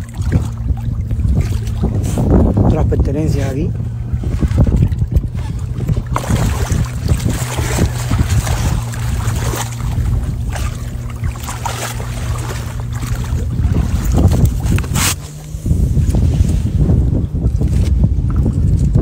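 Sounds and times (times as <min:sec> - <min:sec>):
steady low hum: 0:00.0 - 0:19.0
wind buffeting microphone: 0:00.0 - 0:19.0.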